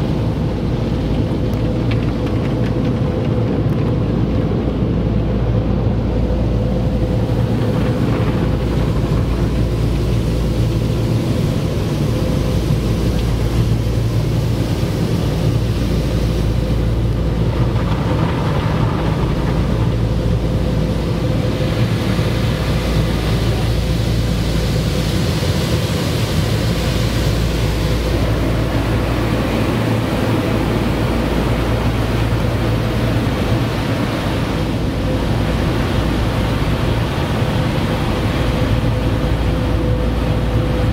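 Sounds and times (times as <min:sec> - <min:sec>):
low machine hum: 0:00.0 - 0:40.9
muffled water spraying on car: 0:00.0 - 0:40.9.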